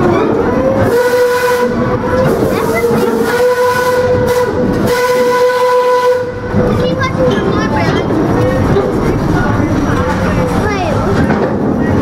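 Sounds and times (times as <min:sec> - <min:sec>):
steam locomotive whistle: 0:00.6 - 0:06.5.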